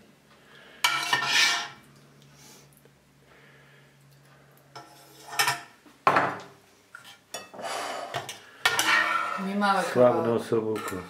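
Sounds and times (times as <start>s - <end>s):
metal ladle scraping pot: 0.8s - 1.8s, 7.0s - 9.8s.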